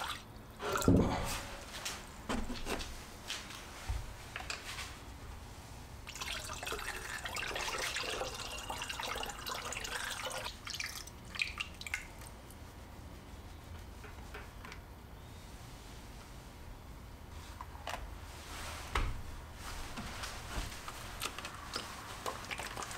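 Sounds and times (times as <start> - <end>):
liquid pouring into plastic jug: 6.0 - 12.3, 21.2 - 22.9
containers being handled: 19.8 - 22.9.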